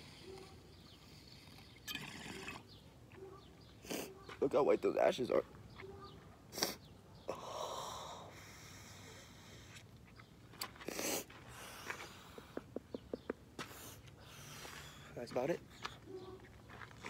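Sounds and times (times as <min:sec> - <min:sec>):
short sharp breaths: 0:06.5 - 0:09.9, 0:13.6 - 0:16.0.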